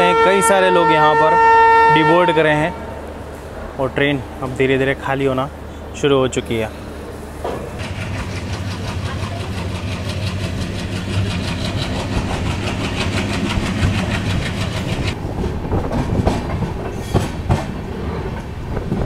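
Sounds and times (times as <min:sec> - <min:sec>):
diesel locomotive rumble: 0:06.6 - 0:19.0
fast even engine pulsing: 0:07.8 - 0:15.2.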